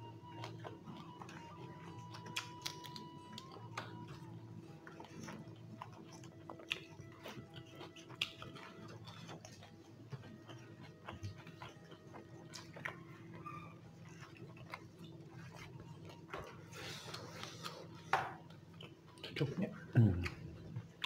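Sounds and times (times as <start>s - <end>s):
faint steady hum: 0.0s - 21.0s
soft chewing: 0.0s - 21.0s
lip smacks: 0.2s - 19.4s.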